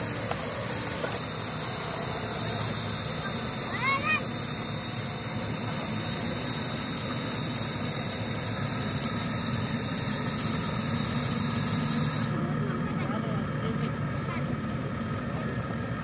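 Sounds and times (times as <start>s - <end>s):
model excavator motor hum: 0.0s - 16.0s.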